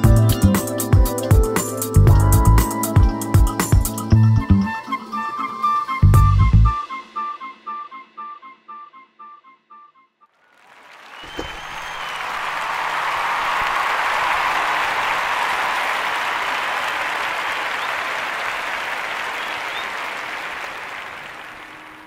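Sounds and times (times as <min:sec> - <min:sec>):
applause: 0:10.4 - 0:22.0.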